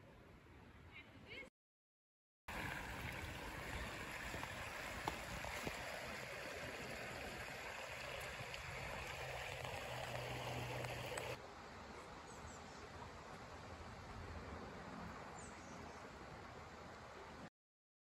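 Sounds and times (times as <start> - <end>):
running water rushing: 2.5 - 11.4.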